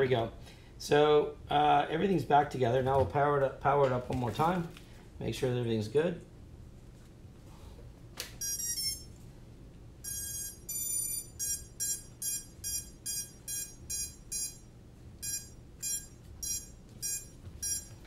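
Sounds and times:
quadcopter power-up beeps: 0:10.1 - 0:14.6, 0:15.2 - 0:17.9.

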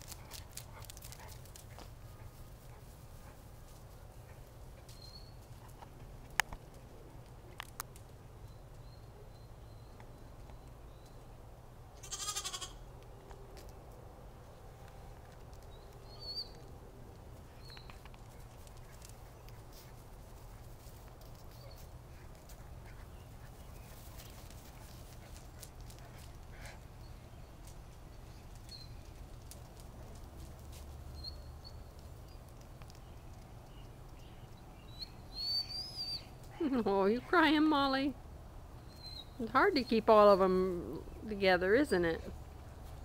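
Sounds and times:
lamb bleating: 0:12.0 - 0:12.8.

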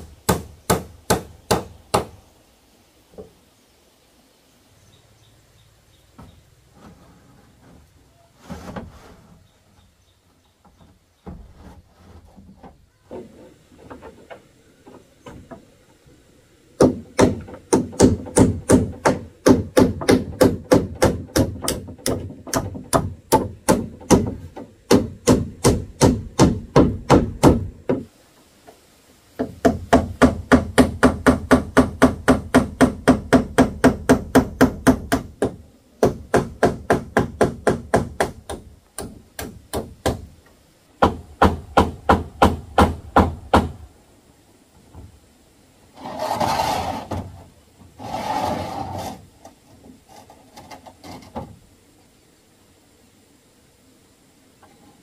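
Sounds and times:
hammer driving nails into roof: 0:16.8 - 0:28.1, 0:29.4 - 0:40.3, 0:41.0 - 0:43.8.

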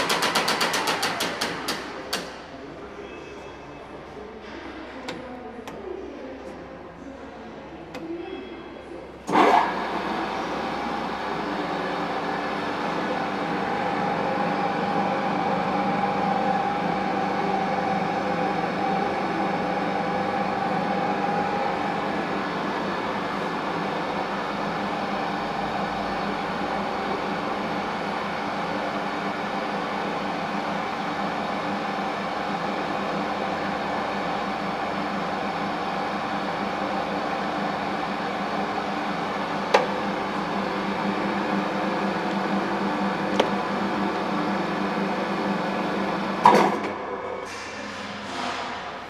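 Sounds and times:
drilling machine hum and gear whine: 0:09.3 - 0:47.6.

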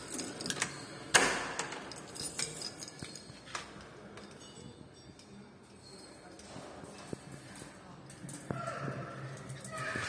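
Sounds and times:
keys jangling: 0:00.0 - 0:06.6.

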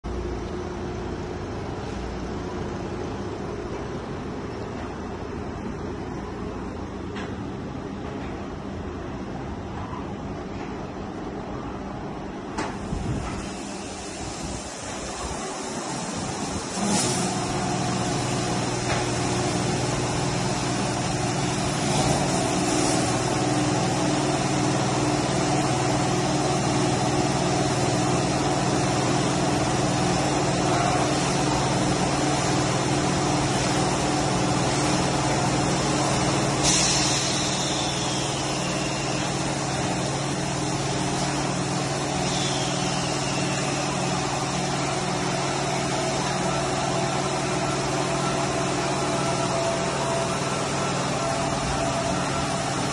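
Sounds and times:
water spraying hiss: 0:12.7 - 0:52.9.

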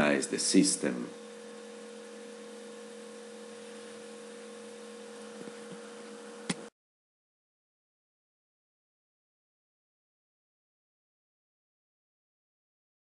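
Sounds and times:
electrical hum with hiss: 0:00.0 - 0:06.7.

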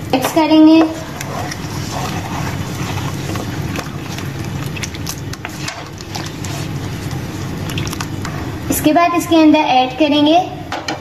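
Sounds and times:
food sizzling: 0:00.0 - 0:09.3
spoon scraping frying pan: 0:00.7 - 0:04.5, 0:05.3 - 0:07.2.

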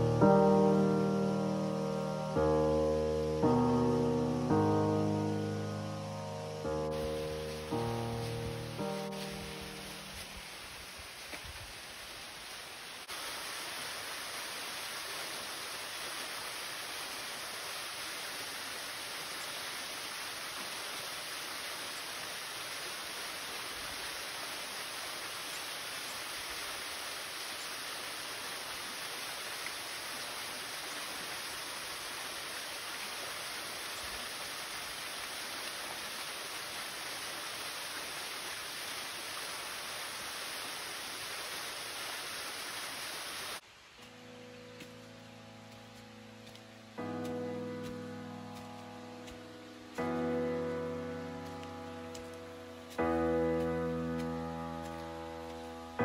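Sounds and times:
waterfall rushing: 0:00.0 - 0:56.0.

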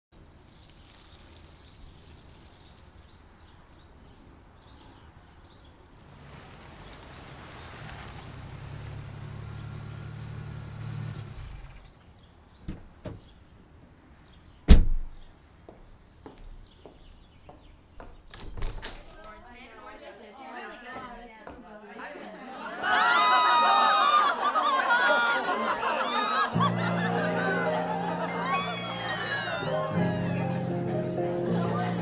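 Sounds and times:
car engine idling: 0:06.2 - 0:12.1
car door slamming: 0:12.6 - 0:13.3, 0:14.7 - 0:15.2.

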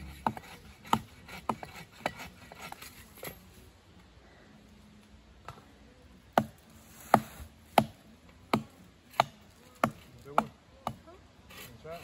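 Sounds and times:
blade chopping wooden log: 0:07.1 - 0:11.0.

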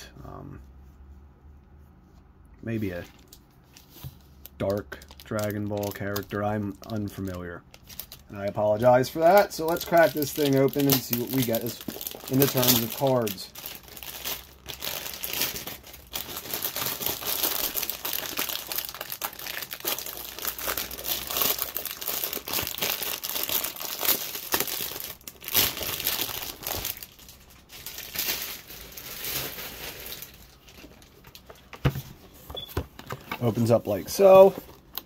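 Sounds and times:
packaging crinkling: 0:03.0 - 0:31.8.

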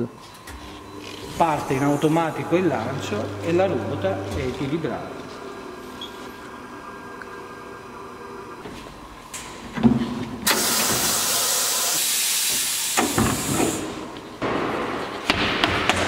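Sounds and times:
loud hiss of exhausting air: 0:10.4 - 0:14.1.

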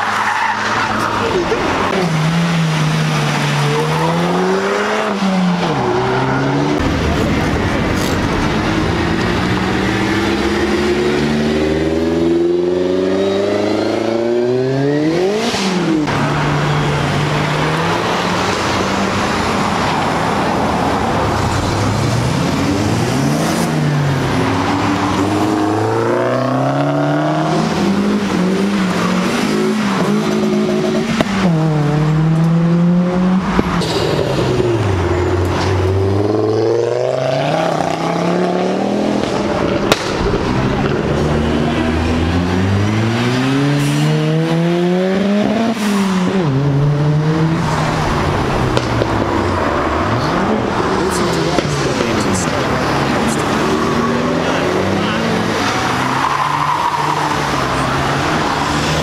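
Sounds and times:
car engines revving and accelerating: 0:00.0 - 0:59.0.

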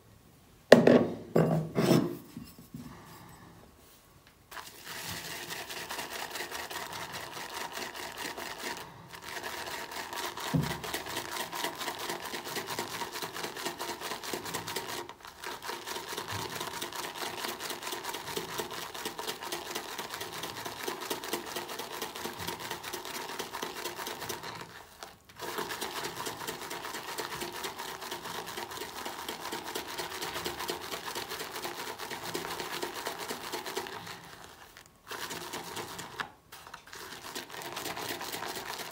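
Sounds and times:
knock on ceramic bowl: 0:00.7 - 0:01.7
brush whipping lather in bowl: 0:04.5 - 0:38.9.

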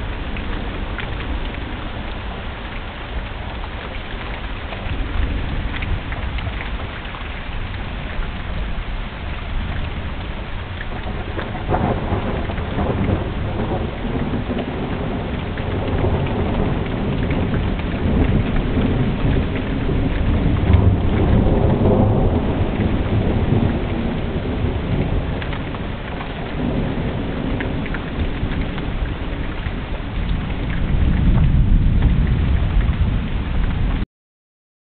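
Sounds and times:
rain falling: 0:00.0 - 0:34.0
rolling thunder: 0:07.8 - 0:34.0.

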